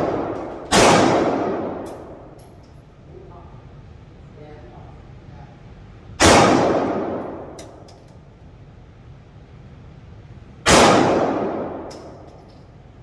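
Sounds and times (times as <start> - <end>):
pistol shots echoing indoors: 0.0 - 2.9, 6.2 - 8.2, 10.6 - 12.9
light metallic clinks: 1.8 - 2.9, 11.8 - 12.8.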